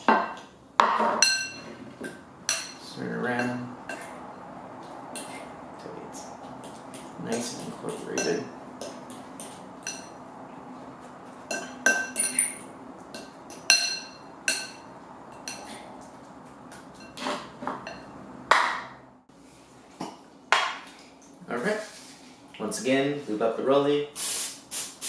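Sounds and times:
spoon clinking against glass bowl: 1.2s - 1.7s, 8.2s - 9.0s, 9.8s - 10.2s, 11.5s - 12.6s, 13.2s - 14.8s.

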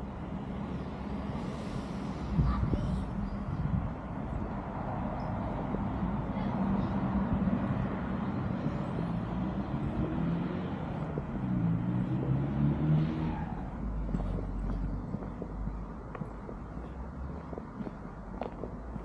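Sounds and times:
car driving past: 7.9s - 15.2s.

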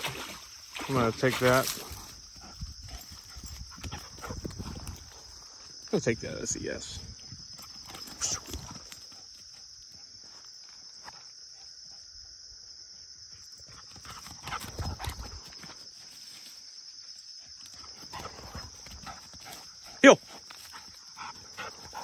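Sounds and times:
high insect drone: 0.0s - 22.0s.

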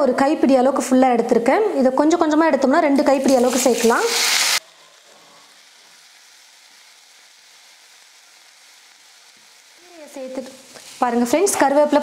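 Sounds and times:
leaves sizzling in hot oil: 2.6s - 12.0s.

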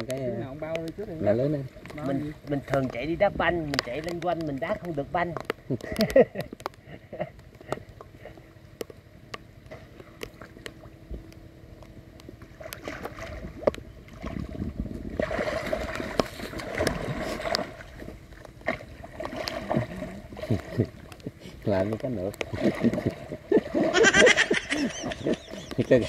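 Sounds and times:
small clicks and taps: 0.0s - 1.0s, 3.6s - 12.9s, 21.0s - 23.0s
water splashing and sloshing: 0.0s - 26.0s.

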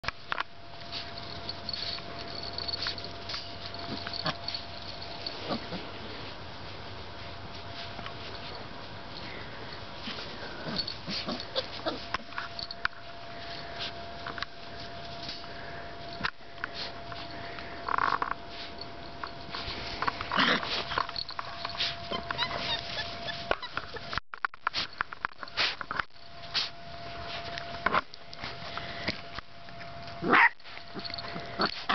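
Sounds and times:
puppies squeaking and whining: 10.6s - 12.7s, 20.3s - 24.2s
rustling in grass: 18.4s - 28.8s
puppies crying: 21.8s - 24.2s.

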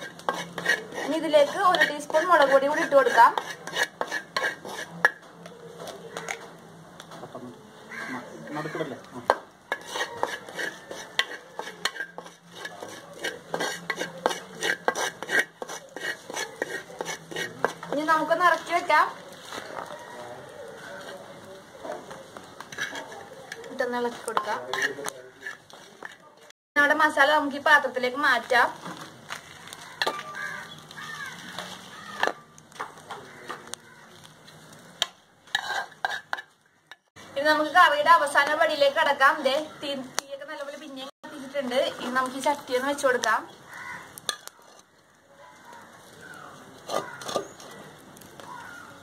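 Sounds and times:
wooden spatula scraping a pot: 0.0s - 6.4s, 9.2s - 26.5s, 28.0s - 33.7s, 34.5s - 39.8s, 40.5s - 45.0s, 45.8s - 48.9s
bird calls: 45.4s - 49.0s.

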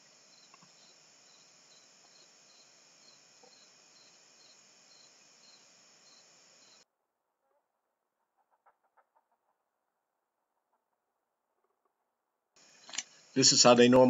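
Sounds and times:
faint steady hiss: 0.0s - 6.8s, 12.6s - 14.0s
insect chirping: 0.0s - 6.8s, 12.6s - 14.0s.

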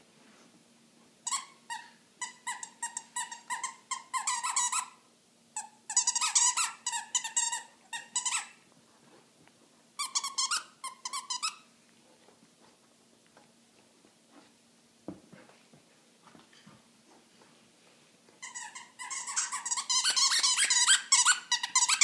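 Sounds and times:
dog toy squeaking: 1.2s - 5.0s, 5.6s - 8.6s, 10.0s - 11.7s, 18.4s - 22.0s.

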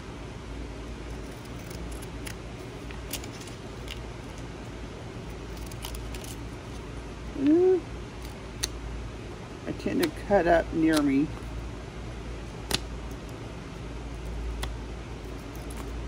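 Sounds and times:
fans whirring: 0.0s - 16.0s
scissors snipping paper: 1.1s - 4.5s, 5.3s - 6.4s, 15.3s - 16.0s.

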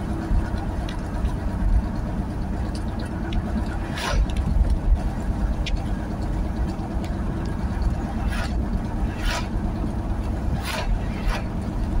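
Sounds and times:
car road and engine rumble: 0.0s - 12.0s
passing car swish: 3.8s - 4.7s, 8.0s - 12.0s.

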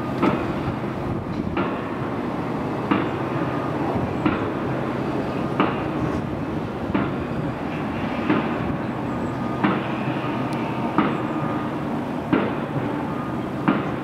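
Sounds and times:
train rumbling on viaduct: 0.0s - 14.0s
heavy construction knocks: 1.3s - 2.0s, 2.9s - 3.3s, 4.0s - 4.6s, 5.5s - 6.1s, 6.9s - 8.8s, 9.6s - 11.5s, 12.2s - 13.0s, 13.6s - 14.0s.

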